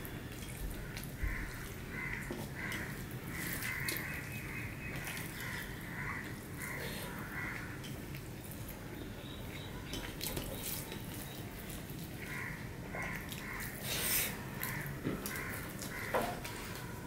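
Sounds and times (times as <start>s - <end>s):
bird cawing: 0.8s - 7.9s, 12.2s - 13.9s, 14.6s - 17.0s.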